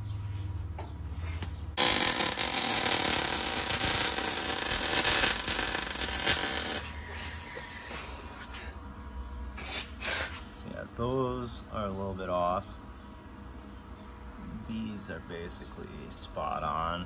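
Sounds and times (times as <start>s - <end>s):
welder crackling hiss: 1.8s - 8.0s.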